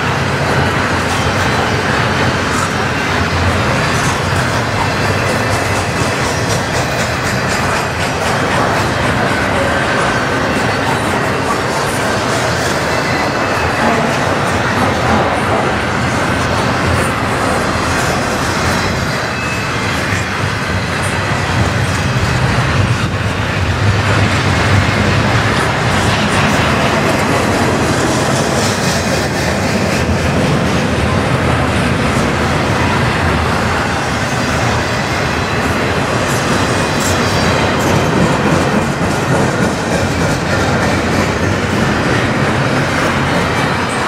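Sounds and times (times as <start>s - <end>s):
clicks from train wheels: 0.0s - 23.2s
freight train wheels on rail: 0.0s - 44.0s.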